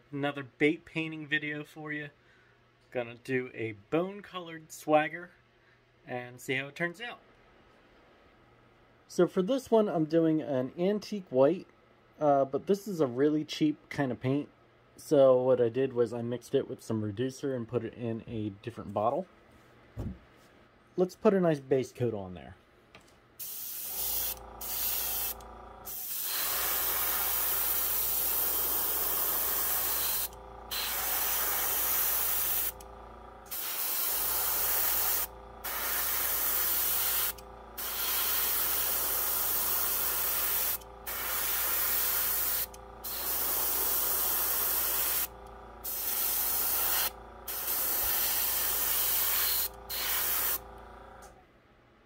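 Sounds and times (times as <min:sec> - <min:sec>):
airbrush hissing in bursts: 0:23.4 - 0:50.7.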